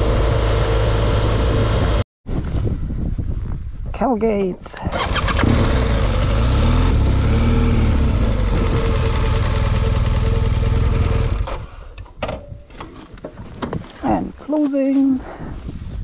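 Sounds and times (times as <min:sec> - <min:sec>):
motorcycle engine running: 0:00.0 - 0:02.0, 0:05.0 - 0:11.7.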